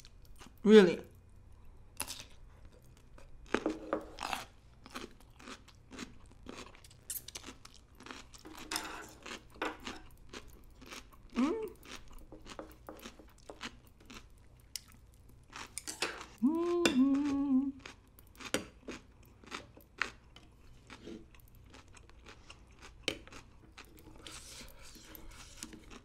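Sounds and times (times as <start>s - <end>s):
chewing crunchy food: 2.0s - 26.0s
person humming: 11.3s - 11.8s, 16.4s - 17.8s.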